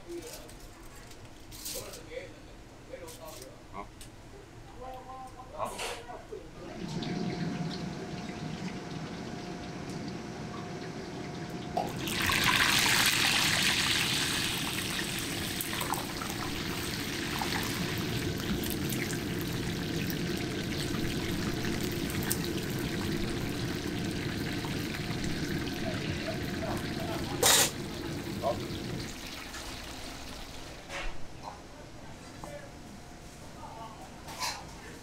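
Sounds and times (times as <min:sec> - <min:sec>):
kitchen hum with faint tone: 0:00.0 - 0:35.0
deep-frying sizzle and bubbling: 0:06.6 - 0:31.2.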